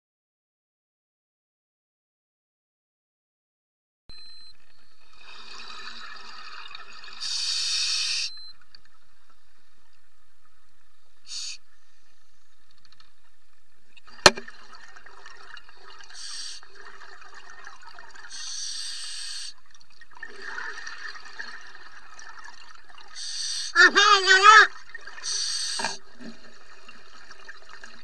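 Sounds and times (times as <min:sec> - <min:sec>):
steady underwater hiss: 0:05.1 - 0:08.4, 0:09.1 - 0:12.7, 0:15.0 - 0:17.4, 0:18.0 - 0:19.7, 0:23.0 - 0:24.0, 0:25.0 - 0:28.0
bubbling hiss underwater: 0:07.1 - 0:08.3, 0:11.3 - 0:11.7, 0:16.0 - 0:17.0, 0:18.2 - 0:19.6, 0:23.1 - 0:23.8, 0:25.1 - 0:26.5.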